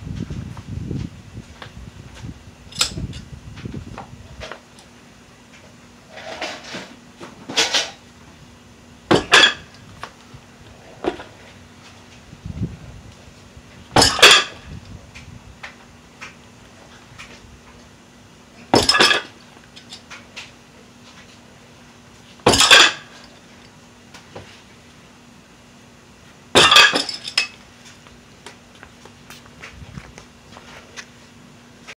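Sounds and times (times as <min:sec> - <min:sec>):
iron weight plates clanking: 0:09.1 - 0:09.7, 0:14.0 - 0:14.6, 0:26.6 - 0:27.4.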